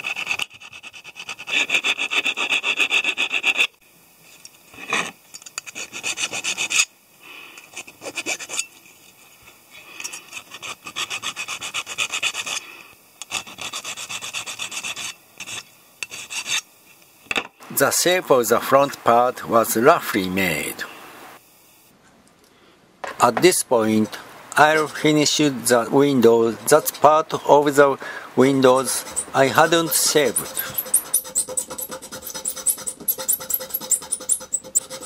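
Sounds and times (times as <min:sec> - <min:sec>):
metal file rasping on brass: 0:00.0 - 0:03.7, 0:04.8 - 0:06.9, 0:07.6 - 0:09.2, 0:10.0 - 0:16.7, 0:24.6 - 0:25.4, 0:26.3 - 0:27.3, 0:28.4 - 0:35.0.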